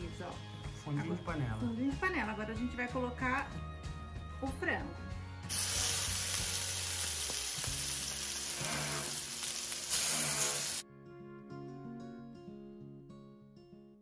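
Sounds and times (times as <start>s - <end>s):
soft guitar music: 5.4s - 14.0s
chicken sizzling in hot oil: 5.5s - 10.8s.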